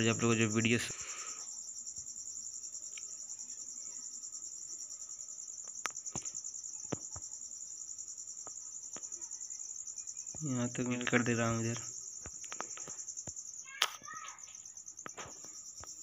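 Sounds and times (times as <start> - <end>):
insects trilling: 0.0 - 16.0
faint sharp clicks: 2.9 - 3.1, 11.8 - 14.0.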